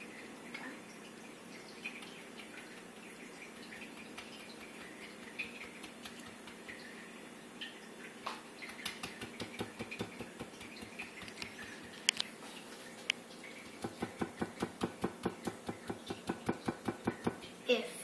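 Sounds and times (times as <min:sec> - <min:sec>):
utensil tapping a plate: 0:13.8 - 0:17.4.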